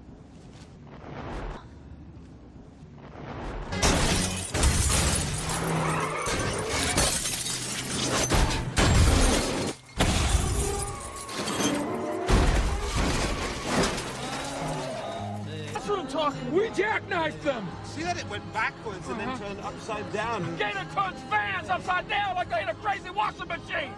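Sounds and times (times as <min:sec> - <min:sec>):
van rolling over: 0:03.8 - 0:15.2
glass shattering: 0:03.8 - 0:15.4
cars crashing: 0:03.8 - 0:15.5.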